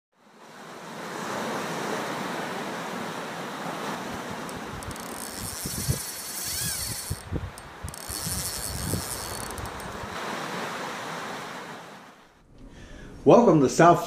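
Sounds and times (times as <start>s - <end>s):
wind: 0.1s - 14.0s
sea water rushing: 0.2s - 12.4s
whistling glide: 4.8s - 7.3s.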